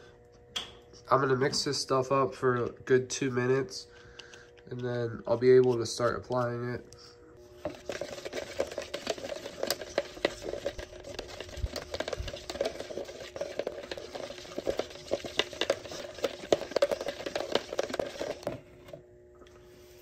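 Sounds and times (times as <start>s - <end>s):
stirring scraping against container: 7.4s - 19.0s.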